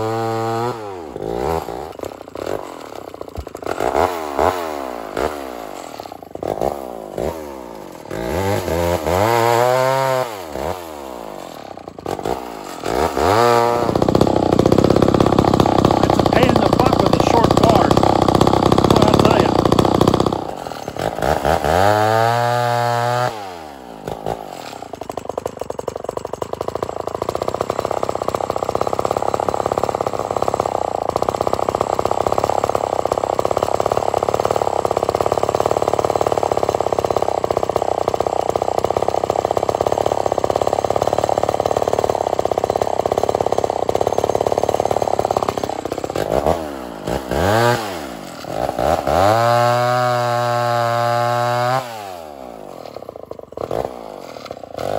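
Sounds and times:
two-stroke chainsaw idling and revving: 0:00.0 - 0:54.9
person talking: 0:16.0 - 0:18.1, 0:18.8 - 0:19.6.

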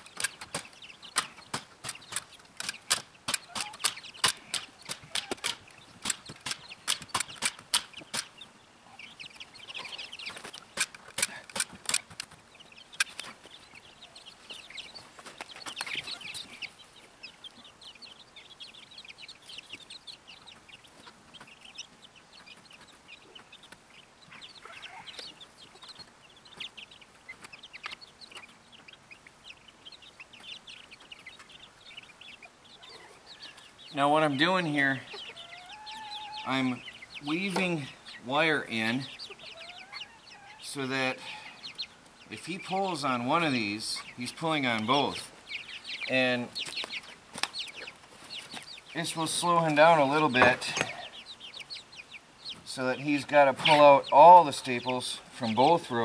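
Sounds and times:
chickens clucking: 0:00.0 - 0:56.0.

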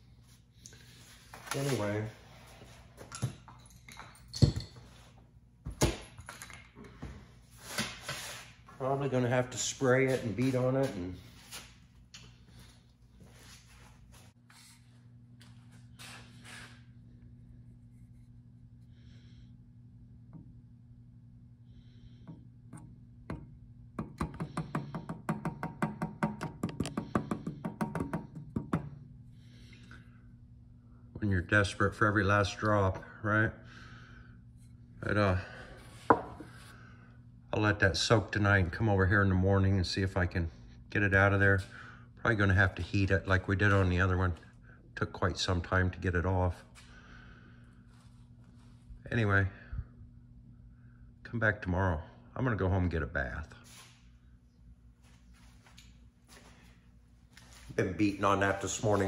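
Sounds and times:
steady low hum: 0:00.0 - 0:59.0.

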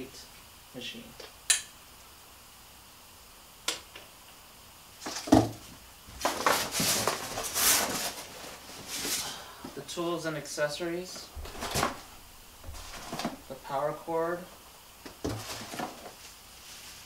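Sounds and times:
cardboard packing rustling: 0:05.0 - 0:09.8, 0:11.0 - 0:17.0.

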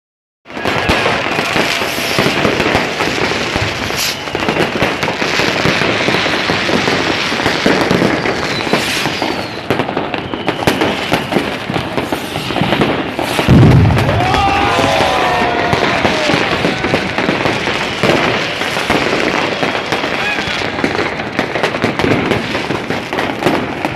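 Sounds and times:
fireworks crackling and banging: 0:00.5 - 0:23.9
heavy low thump: 0:13.5 - 0:14.7.

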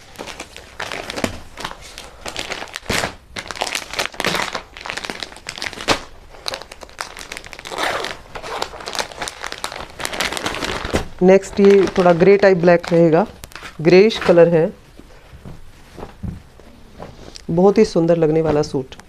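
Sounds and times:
glossy pages rustling: 0:00.0 - 0:14.6
plastic packaging crinkling: 0:00.0 - 0:14.7.

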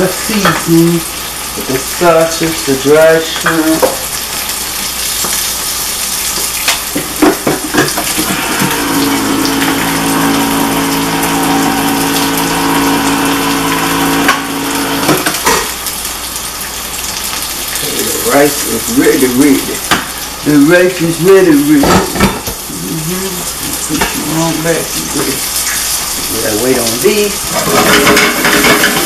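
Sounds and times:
food sizzling in pans: 0:00.0 - 0:29.0
steady hum: 0:08.1 - 0:15.9
kitchenware knocking: 0:27.6 - 0:29.0.

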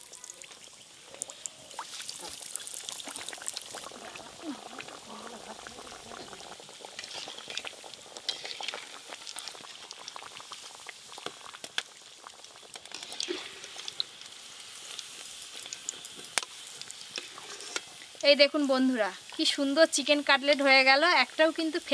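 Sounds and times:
oil sizzling and crackling: 0:00.0 - 0:21.9
metal ladle scraping pan: 0:07.0 - 0:08.9, 0:12.8 - 0:14.0, 0:16.8 - 0:18.0.

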